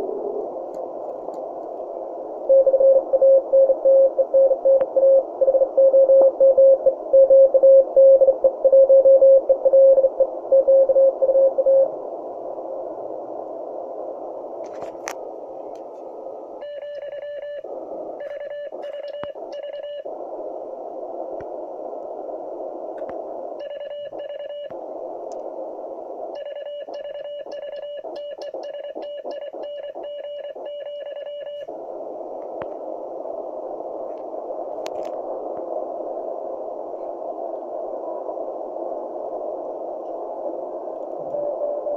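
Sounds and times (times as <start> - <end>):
radio band hiss: 0.0 - 41.9
morse code signal: 2.5 - 11.9, 16.6 - 20.1, 23.6 - 24.7, 26.3 - 31.7, 41.3 - 41.9.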